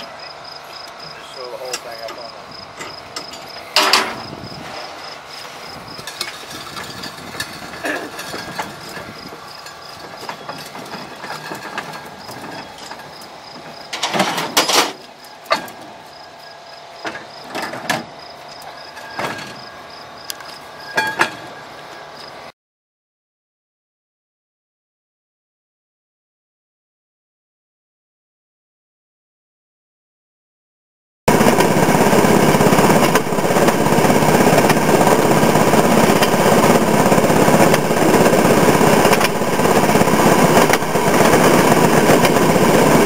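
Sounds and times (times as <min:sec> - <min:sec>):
metal clanks and knocks: 0:01.6 - 0:05.2, 0:06.0 - 0:16.0, 0:17.0 - 0:19.8, 0:20.8 - 0:21.6.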